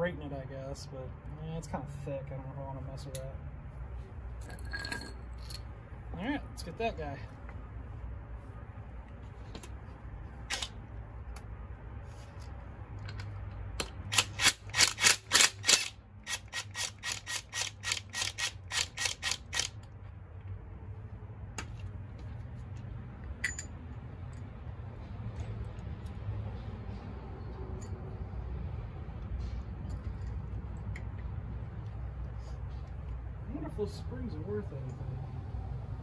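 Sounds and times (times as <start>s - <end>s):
tool clicks: 10.5s - 10.7s, 13.0s - 20.0s.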